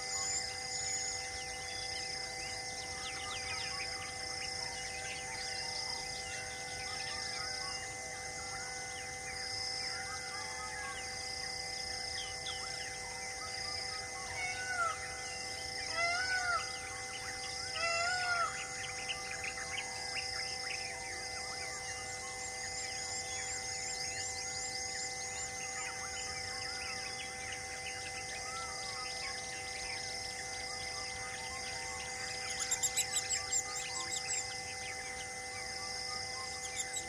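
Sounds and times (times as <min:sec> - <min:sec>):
high pulsing insect call: 0:00.0 - 0:37.0
hum of held tones: 0:00.0 - 0:37.0
loud arched bird calls: 0:12.1 - 0:37.0.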